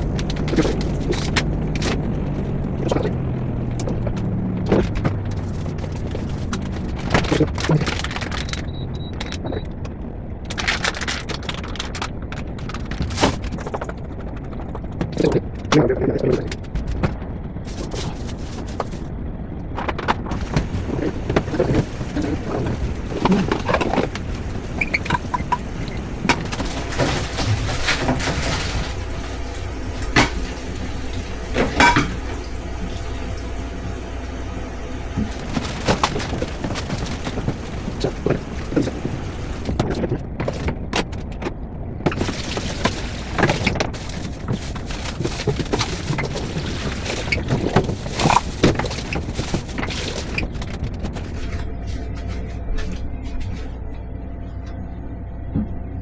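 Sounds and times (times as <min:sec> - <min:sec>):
steady low hum: 0:00.0 - 0:56.0
pots and pans clattering: 0:31.6 - 0:32.3.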